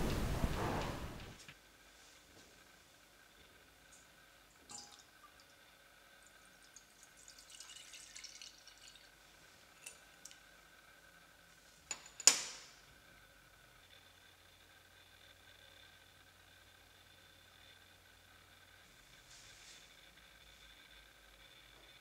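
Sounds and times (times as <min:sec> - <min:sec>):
milk pouring into metal pot: 0:06.2 - 0:09.2.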